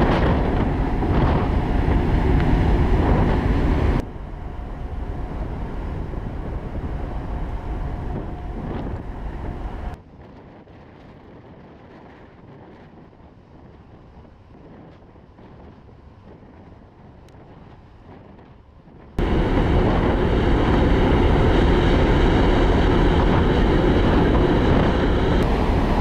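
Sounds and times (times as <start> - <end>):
ship engine rumble: 0.0 - 10.0, 19.1 - 26.0
wind buffeting microphone: 0.0 - 26.0.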